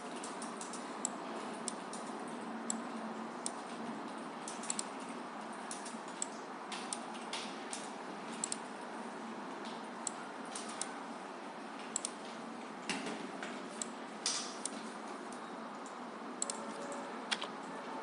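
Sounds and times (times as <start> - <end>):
computer mouse clicking: 4.5 - 4.9, 8.4 - 8.6, 11.9 - 12.2, 15.8 - 17.6.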